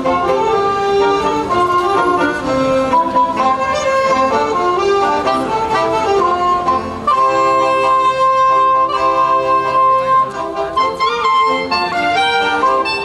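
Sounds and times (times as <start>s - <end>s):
saxophone ensemble playing: 0.0s - 13.0s.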